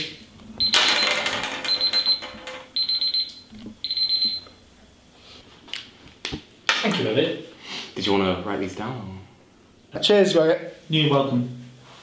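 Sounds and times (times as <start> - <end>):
electronic timer alarm beeping: 0.6 - 4.5.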